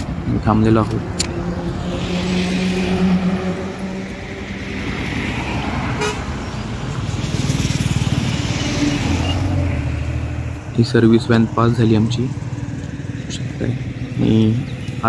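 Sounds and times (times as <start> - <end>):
car driving past: 0.8 - 15.0
motorcycle driving past: 0.8 - 15.0.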